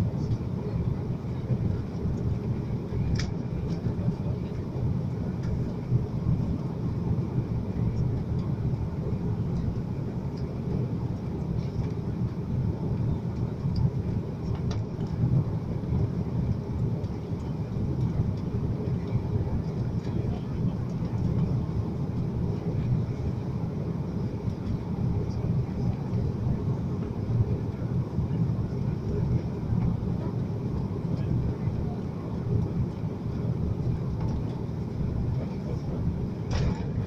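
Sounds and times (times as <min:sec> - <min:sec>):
aircraft cabin engine rumble: 0:00.0 - 0:37.0
faint click: 0:03.1 - 0:03.4.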